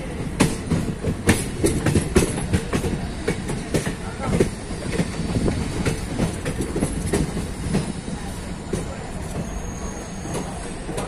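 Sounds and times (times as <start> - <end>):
train running gear rumble: 0.0 - 11.0
train wheels clattering over joints: 0.1 - 11.0
high wheel squeal: 9.2 - 10.8.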